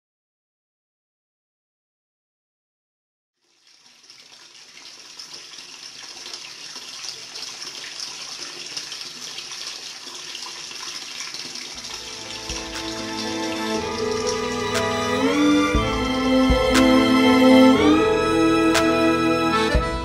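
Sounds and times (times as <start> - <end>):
water pouring and splashing on hands: 3.4 - 15.7.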